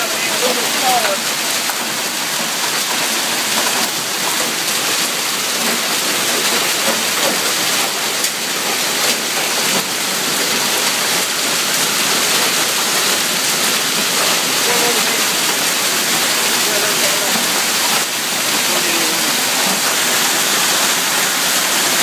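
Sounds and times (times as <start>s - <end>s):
hail and heavy rain falling: 0.0s - 22.0s.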